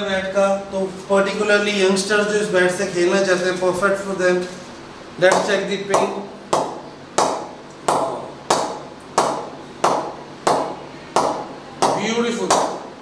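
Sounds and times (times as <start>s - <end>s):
cricket ball knocking on bat: 5.3s - 12.8s.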